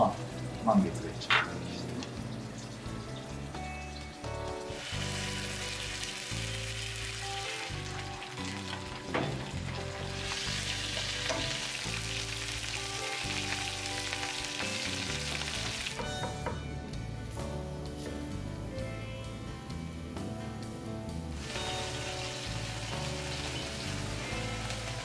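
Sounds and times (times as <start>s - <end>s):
meat sizzling in a frying pan: 0.0s - 16.1s, 21.4s - 25.0s.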